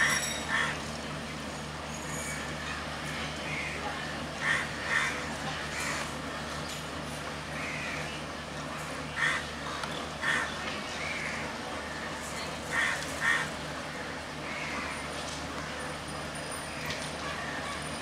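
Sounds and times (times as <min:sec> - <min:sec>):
diesel locomotive idling: 0:00.0 - 0:18.0.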